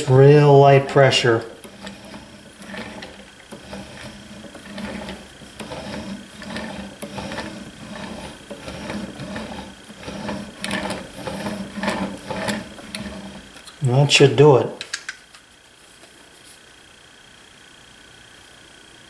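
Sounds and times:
chisel scraping on whetstone: 0:00.9 - 0:13.5.

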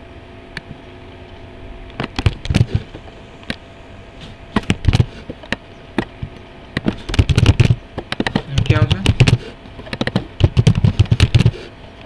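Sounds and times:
faint steady hum: 0:00.0 - 0:12.0
keyboard and mouse clicks: 0:02.0 - 0:02.7, 0:06.8 - 0:11.5.

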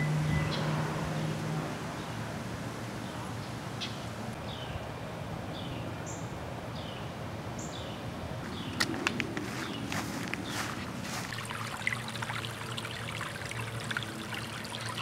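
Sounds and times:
outdoor background noise: 0:00.0 - 0:15.0
bird chirping: 0:07.6 - 0:11.2.

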